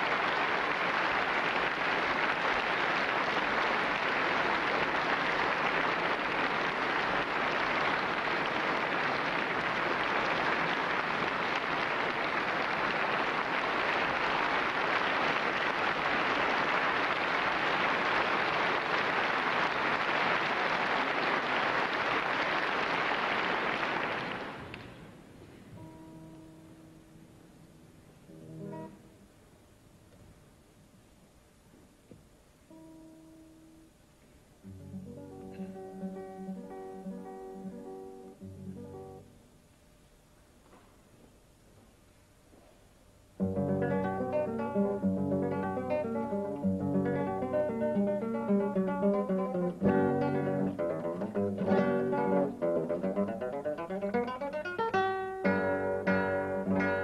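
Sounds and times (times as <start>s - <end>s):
audience applause: 0.0s - 25.0s, 43.8s - 54.6s
quiet guitar notes: 25.4s - 29.2s, 34.6s - 39.4s.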